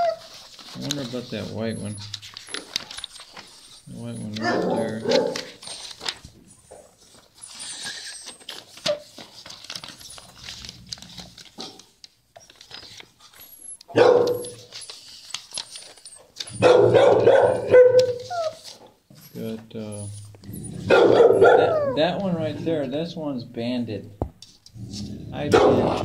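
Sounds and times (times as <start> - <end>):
dogs barking: 4.0 - 5.7, 13.9 - 14.6, 16.5 - 18.6, 20.6 - 22.2, 25.3 - 26.0.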